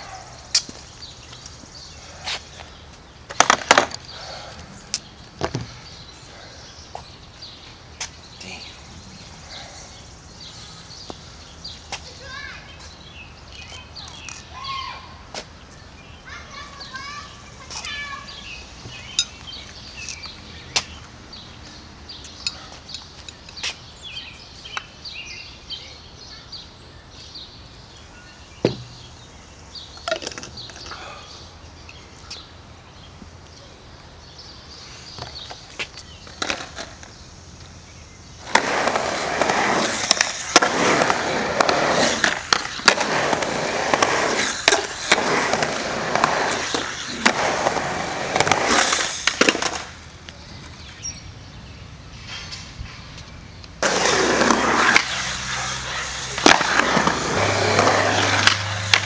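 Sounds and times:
skateboard wheels rumbling on concrete: 0:00.0 - 0:15.6, 0:28.6 - 0:51.7, 0:52.7 - 0:59.0
skateboard clacks: 0:03.3 - 0:04.1, 0:38.4 - 0:50.0, 0:53.8 - 0:59.0.

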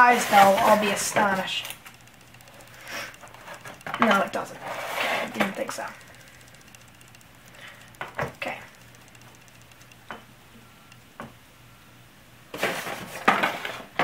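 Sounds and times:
plastic packaging crinkling: 0:00.0 - 0:09.5
metal toy clicks and knocks: 0:00.7 - 0:10.3.

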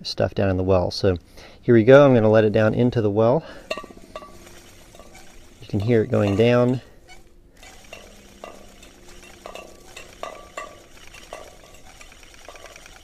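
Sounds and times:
tin can clinking in metal pipe: 0:03.5 - 0:13.0.

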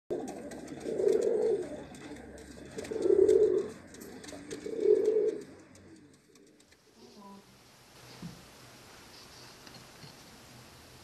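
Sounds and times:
pigeon cooing: 0:00.1 - 0:06.7.

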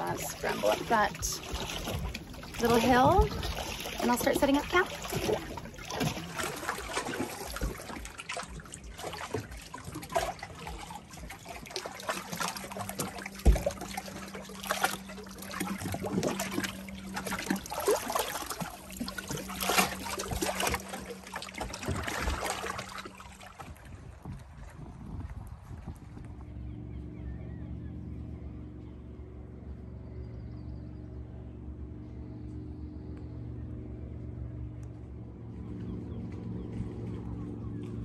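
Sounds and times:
waves lapping against rock: 0:00.0 - 0:25.9.

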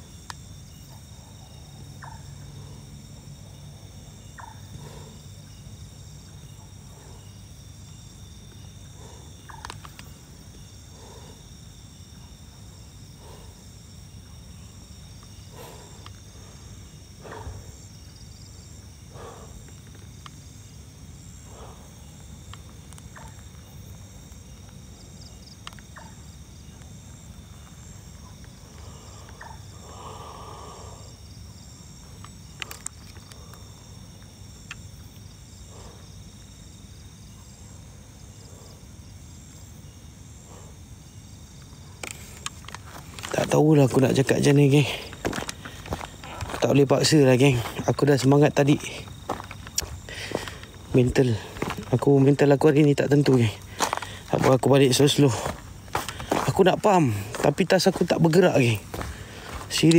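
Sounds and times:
crickets trilling: 0:00.0 - 0:59.9
footsteps on dry dirt: 0:42.0 - 0:59.9.

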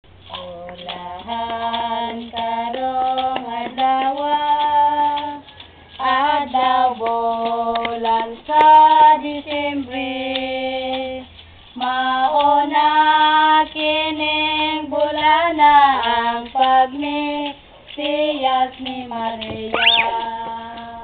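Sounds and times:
carolers singing in high voices: 0:00.2 - 0:21.0
light beat taps: 0:15.9 - 0:21.0.

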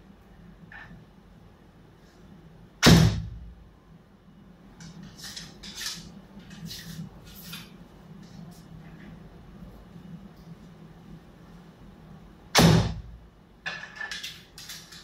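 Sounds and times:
arrow rustling scrapes: 0:04.9 - 0:07.8.

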